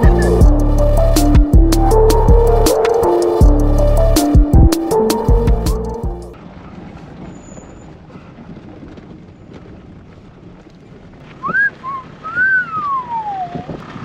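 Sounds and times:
person wolf whistling: 0:11.4 - 0:13.7.

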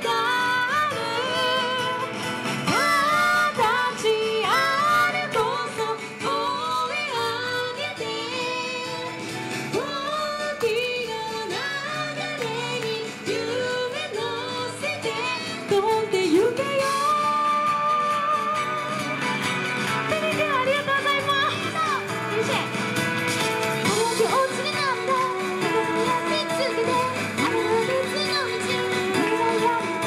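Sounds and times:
woman singing: 0:00.0 - 0:22.7, 0:23.8 - 0:30.0
instrumental accompaniment: 0:00.0 - 0:30.0.

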